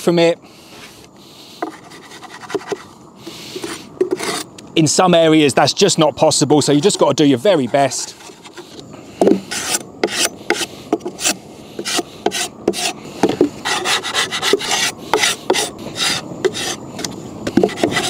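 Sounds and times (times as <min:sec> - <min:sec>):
metal tool scraping wood: 0:01.6 - 0:04.6, 0:06.8 - 0:18.0.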